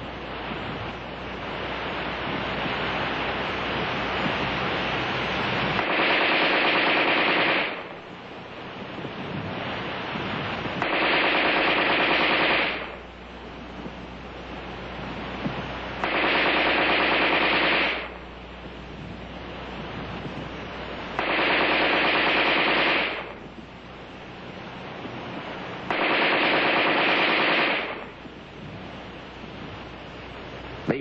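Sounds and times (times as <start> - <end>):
film soundtrack hiss: 0.0 - 31.0
automatic rifle bursts: 5.8 - 7.8, 10.8 - 12.9, 16.0 - 18.1, 21.2 - 23.3, 25.9 - 28.0.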